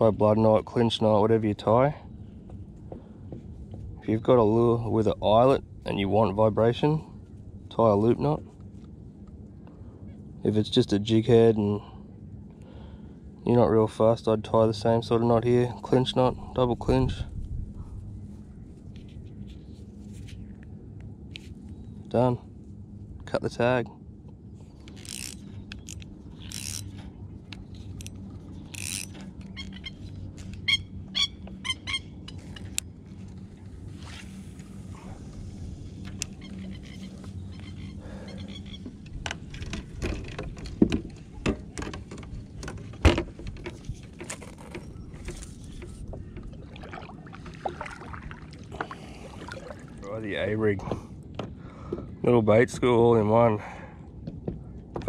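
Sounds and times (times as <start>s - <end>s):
steady low hum: 0.0s - 55.0s
fishing tackle clicks and scrapes: 24.6s - 30.7s, 32.2s - 46.5s.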